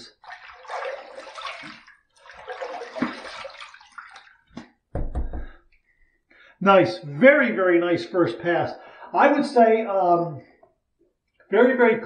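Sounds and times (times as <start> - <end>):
water splashing on face: 0.0 - 4.8
low thump: 4.9 - 5.6.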